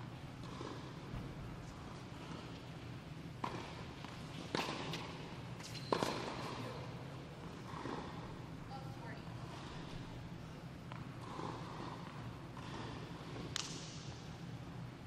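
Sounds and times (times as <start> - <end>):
tennis racket hitting ball: 4.5 - 5.1, 5.9 - 6.6.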